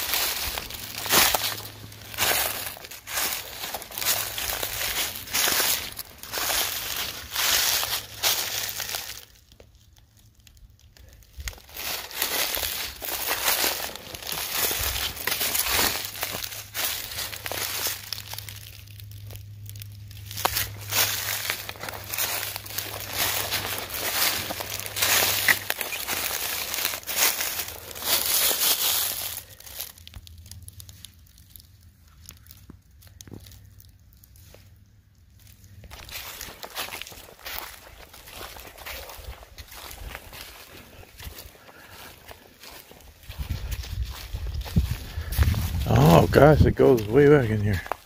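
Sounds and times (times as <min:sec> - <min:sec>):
footsteps crunching dry leaves: 0:00.0 - 0:48.0
faint rustles: 0:10.9 - 0:34.8.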